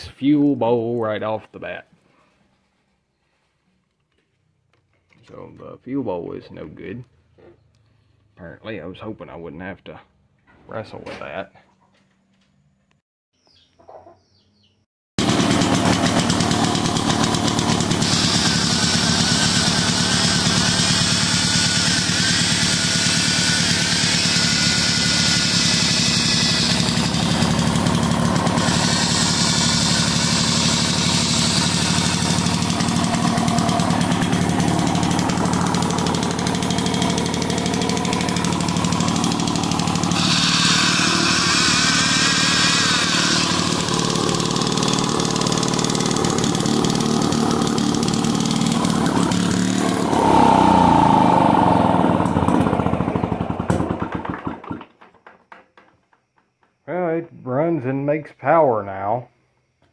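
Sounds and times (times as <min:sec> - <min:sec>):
electric drill whining: 0:15.2 - 0:53.8
generator engine running: 0:15.2 - 0:54.7.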